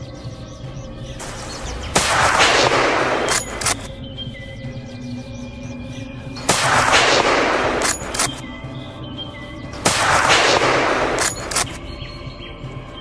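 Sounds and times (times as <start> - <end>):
background music: 0.0 - 13.0
gunshots ringing: 1.2 - 3.9, 6.4 - 8.4, 9.8 - 11.8
quick sharp clicks: 2.0 - 4.0, 6.5 - 8.5, 9.9 - 11.9.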